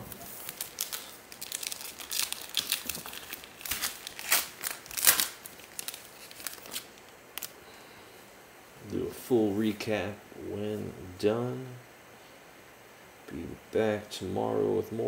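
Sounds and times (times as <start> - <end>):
card pack wrapper crinkling and tearing: 0.0 - 7.6.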